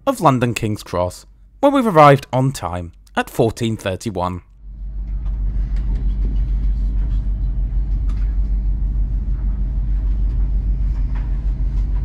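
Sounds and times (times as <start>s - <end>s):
train carriage rumble: 5.1s - 12.0s.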